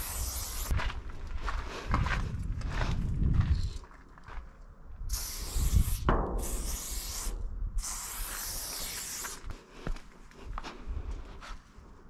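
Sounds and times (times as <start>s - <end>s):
spray-paint can hissing: 0.0s - 0.7s, 5.1s - 9.4s.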